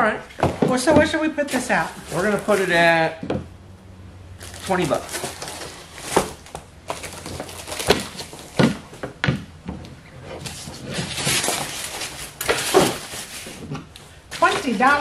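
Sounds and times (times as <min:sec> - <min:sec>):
cardboard and packing rustling: 0:00.4 - 0:03.1, 0:04.4 - 0:15.0.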